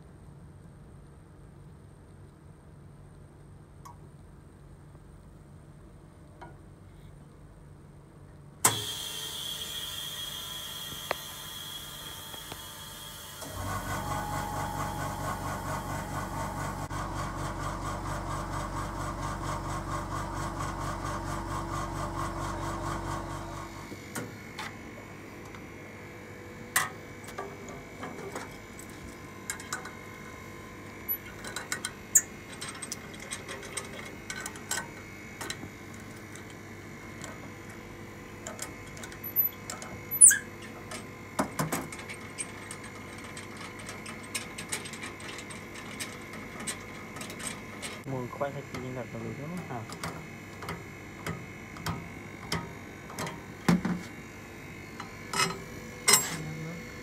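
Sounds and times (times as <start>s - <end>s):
machine motor pulsing: 8.7s - 25.9s.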